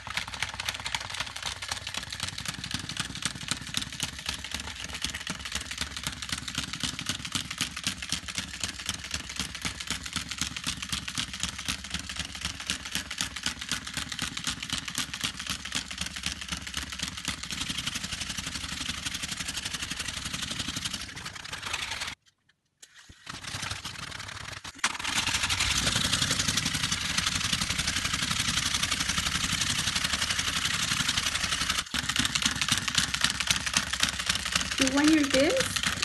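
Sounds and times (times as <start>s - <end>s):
toy motor and gears whirring: 0.0s - 22.2s, 23.0s - 36.0s.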